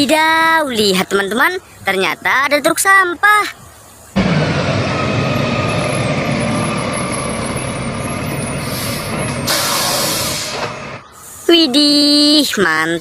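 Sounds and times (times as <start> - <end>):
garbage truck engine rumbling: 4.2 - 11.2
burst of hiss: 8.6 - 11.6.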